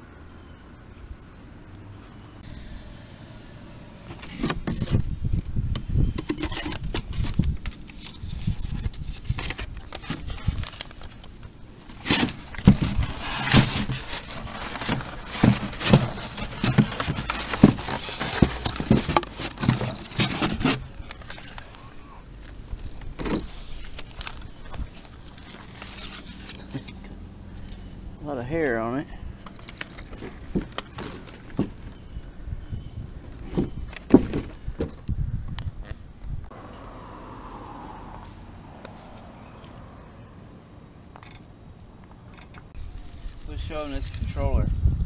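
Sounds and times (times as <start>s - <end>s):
cardboard packaging rustling: 6.6s - 27.1s, 29.4s - 32.0s, 42.8s - 44.4s.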